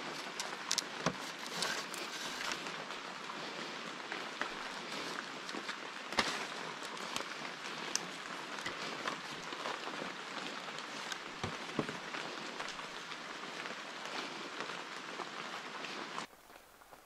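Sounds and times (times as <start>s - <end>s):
bamboo clicks and knocks: 0.0s - 2.6s
rain pattering on foliage: 0.0s - 17.0s.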